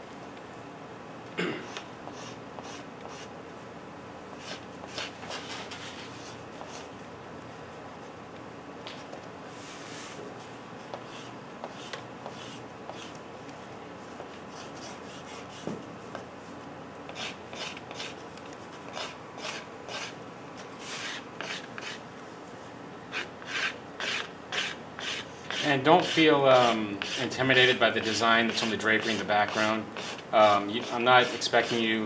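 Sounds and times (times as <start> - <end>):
pastel scratching on paper: 10.8 - 13.2, 17.1 - 20.1, 20.8 - 22.0, 23.1 - 27.3, 28.0 - 31.9.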